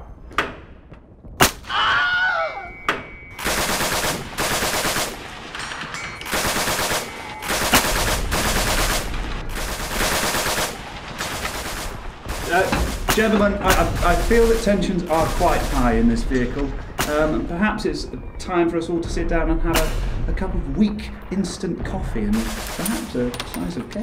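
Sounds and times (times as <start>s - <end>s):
machine gun bursts: 3.4s - 17.2s, 22.4s - 24.0s.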